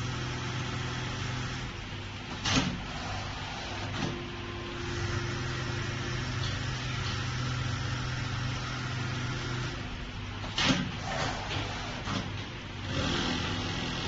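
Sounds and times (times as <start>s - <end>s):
sewing machine humming: 4.6s - 10.0s, 12.8s - 14.0s.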